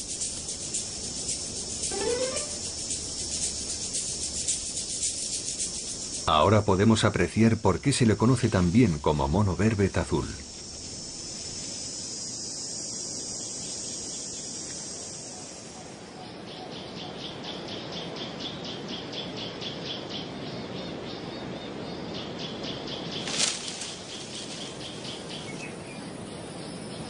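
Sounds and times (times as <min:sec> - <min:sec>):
rapid high chirping: 0:00.0 - 0:06.3
high insect drone: 0:00.0 - 0:19.2, 0:19.9 - 0:27.0.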